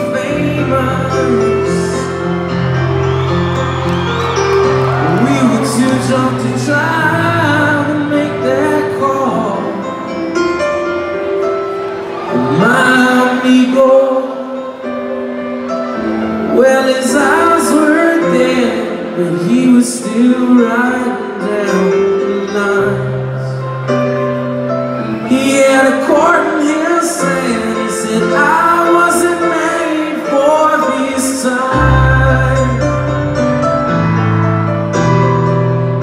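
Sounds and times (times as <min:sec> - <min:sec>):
person singing: 0:00.0 - 0:02.9, 0:04.4 - 0:11.3, 0:12.2 - 0:24.4, 0:25.0 - 0:34.3
piano chords: 0:00.0 - 0:36.0.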